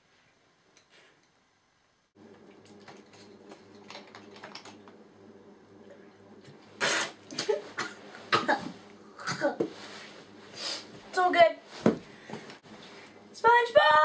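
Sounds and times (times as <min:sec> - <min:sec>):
person spluttering and coughing: 0:06.8 - 0:09.6.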